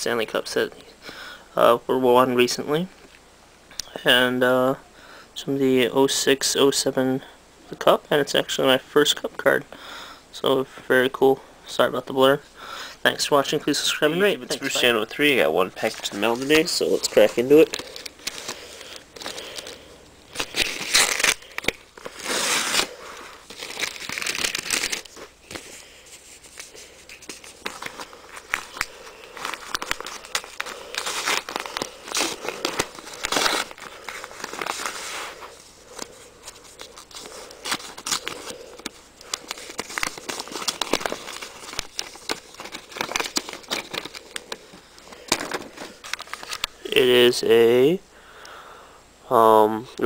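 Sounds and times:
paper envelope tearing: 15.8s - 25.6s, 26.5s - 35.5s, 36.4s - 44.5s.

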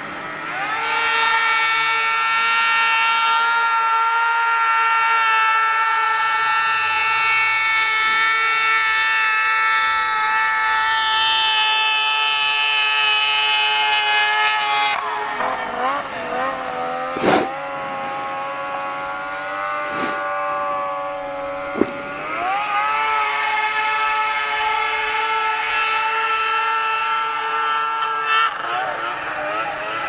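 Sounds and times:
snowmobile engine whining: 0.0s - 30.0s
short thumps: 21.8s - 22.0s.

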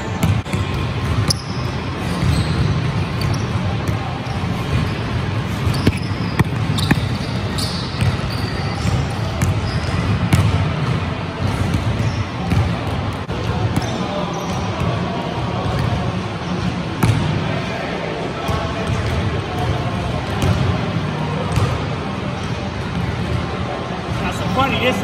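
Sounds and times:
basketball bouncing on gym floor: 0.2s - 15.0s, 17.0s - 17.3s, 18.5s - 20.8s
shoe squeaks: 1.2s - 10.3s.

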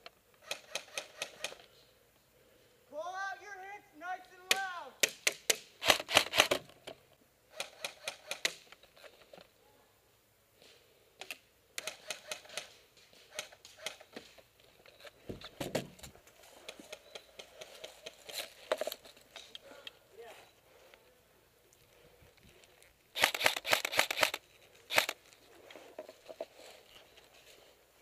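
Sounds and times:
airsoft guns firing bursts: 0.4s - 1.6s, 4.5s - 6.6s, 11.8s - 14.0s, 23.2s - 25.2s.

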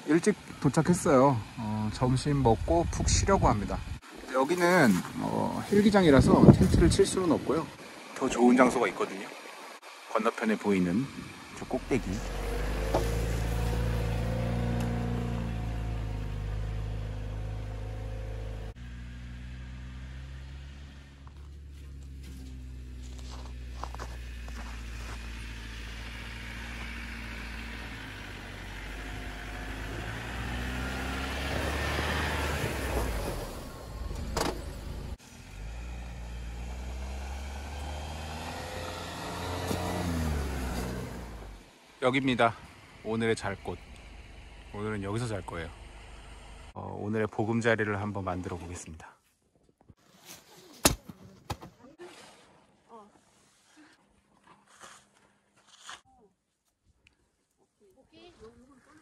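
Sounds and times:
engine droning under load: 0.2s - 4.2s, 5.1s - 46.8s.

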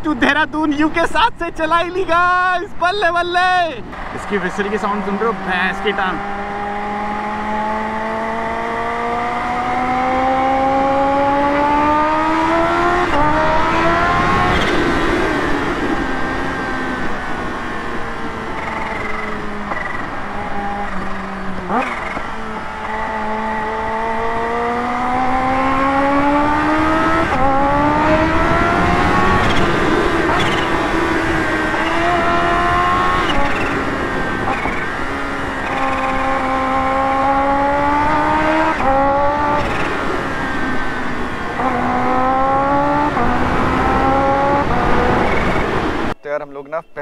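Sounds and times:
motorcycle engine accelerating: 3.8s - 46.2s.

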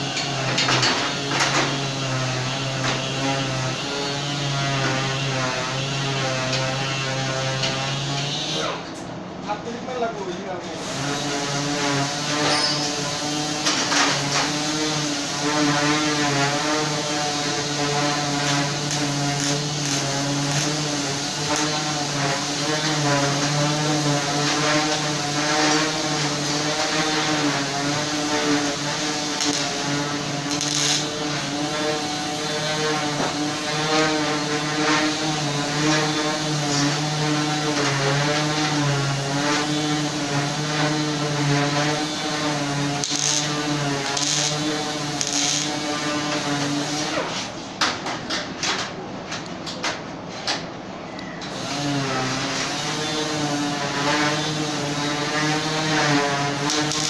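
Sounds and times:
welding arc crackle: 10.8s - 47.3s, 51.6s - 57.0s
machine humming: 10.9s - 47.1s.

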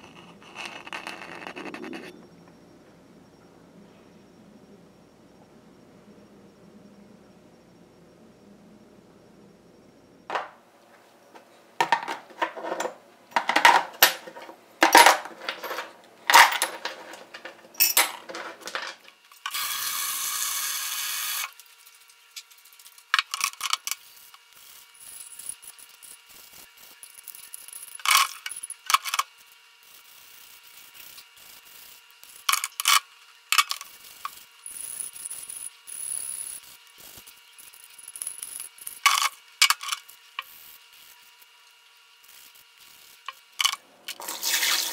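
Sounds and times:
steady hiss: 29.4s - 44.9s.

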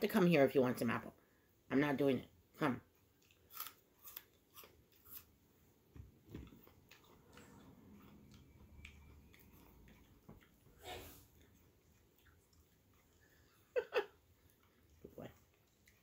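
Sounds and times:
crunching apple: 3.1s - 5.4s.

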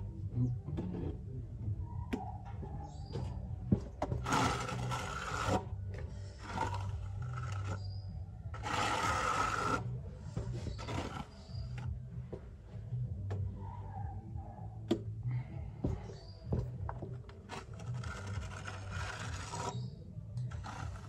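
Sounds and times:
trowel scraping wet cement: 4.0s - 11.9s, 17.4s - 21.0s.

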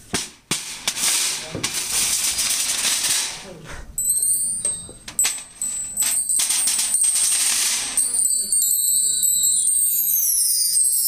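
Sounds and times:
bar chimes ringing: 4.0s - 11.0s.

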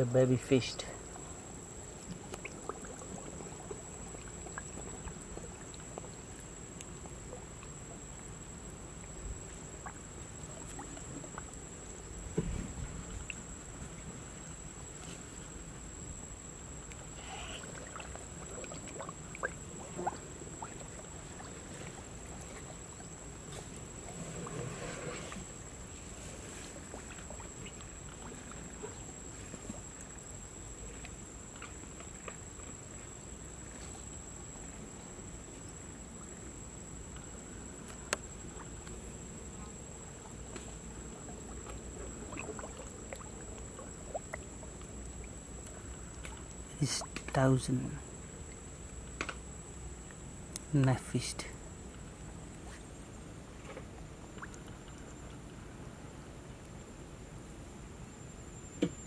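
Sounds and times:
water drips and ticks: 2.0s - 12.3s, 16.1s - 24.0s, 26.9s - 34.4s, 35.8s - 55.6s
water plinks: 41.1s - 48.6s.

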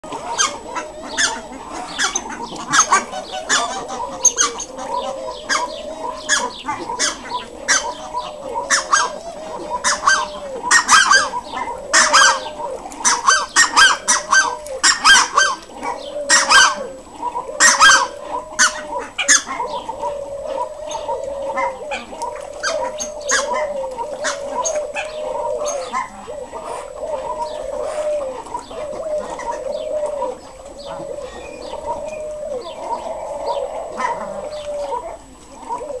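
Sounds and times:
ducks calling: 0.0s - 36.0s.

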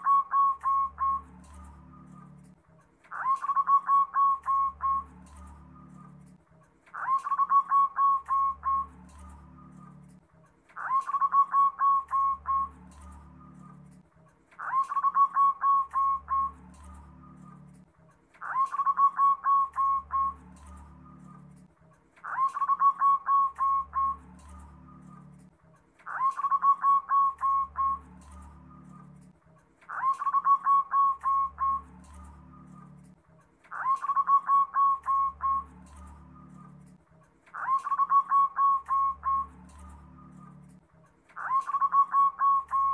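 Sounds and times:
dove cooing: 0.0s - 10.2s, 10.8s - 14.0s, 14.6s - 17.8s, 18.4s - 29.3s, 29.9s - 40.7s, 41.4s - 42.9s.

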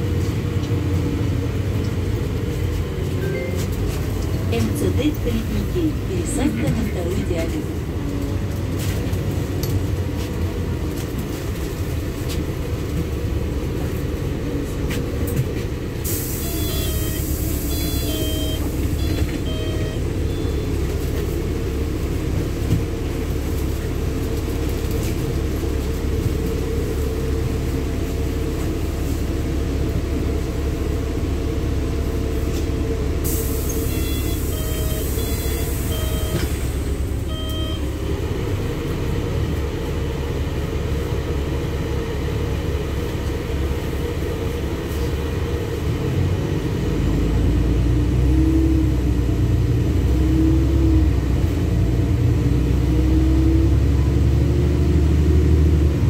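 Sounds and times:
bus engine and road rumble: 0.0s - 56.0s
faint short beeps: 16.4s - 20.8s, 33.8s - 36.6s, 37.2s - 38.0s.

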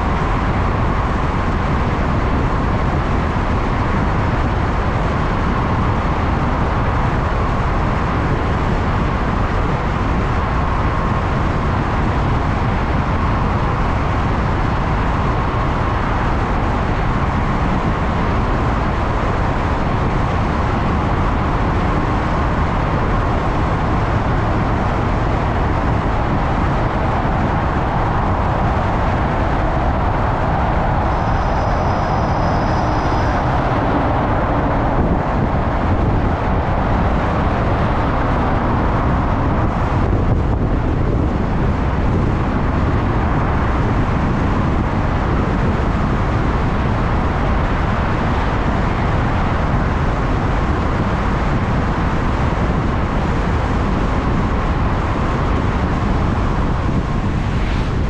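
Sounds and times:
road noise from motorbike: 0.0s - 58.0s
wind noise: 0.0s - 58.0s
faint high whine: 20.5s - 40.2s.

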